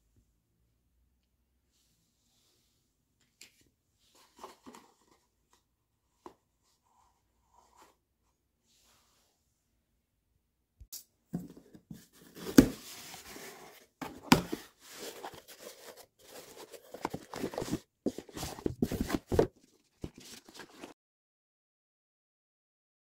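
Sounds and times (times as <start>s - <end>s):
cardboard box rustling and scraping: 11.9s - 21.0s.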